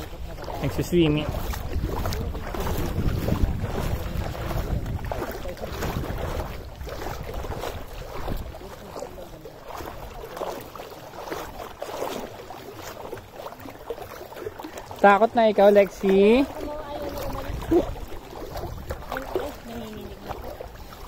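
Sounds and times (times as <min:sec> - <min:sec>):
wind rumbling on microphone: 0:00.0 - 0:12.1, 0:16.2 - 0:21.0
sea water lapping: 0:00.0 - 0:21.0.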